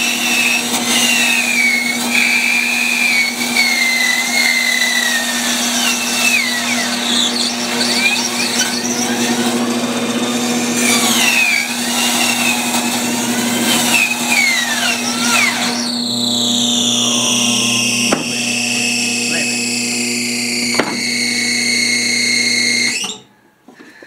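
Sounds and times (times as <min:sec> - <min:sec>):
blade squeal: 0:00.0 - 0:09.4
bandsaw cutting wood: 0:00.0 - 0:23.3.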